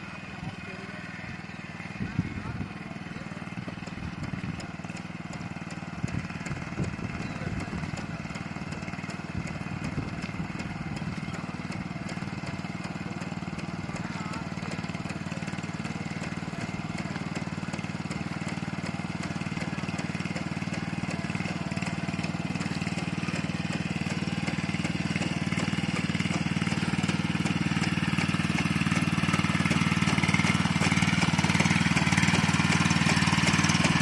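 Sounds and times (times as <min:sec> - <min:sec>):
small engine running: 0:00.0 - 0:34.0.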